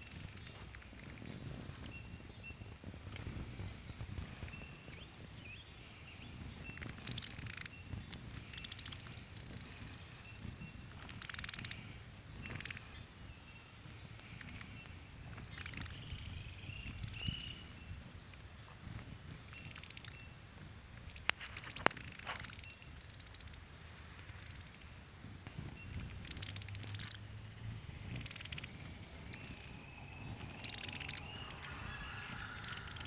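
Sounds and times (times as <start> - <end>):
low rumble: 25.4 - 33.0
buzzy animal calls: 26.1 - 33.0.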